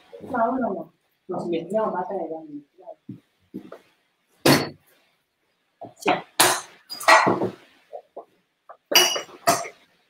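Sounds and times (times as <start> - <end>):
kitchenware clinking and clattering: 5.8 - 9.9.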